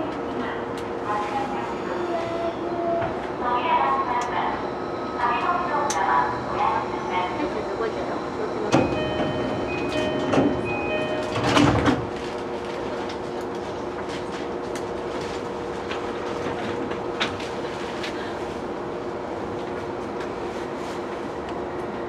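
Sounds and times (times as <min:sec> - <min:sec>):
steady train hum: 0:00.0 - 0:22.0
train door chime: 0:08.7 - 0:12.0
sliding doors closing with thud: 0:08.7 - 0:12.2.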